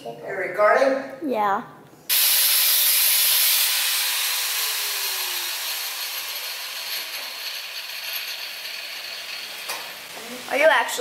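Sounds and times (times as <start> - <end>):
chop saw cutting steel: 2.1 - 10.1.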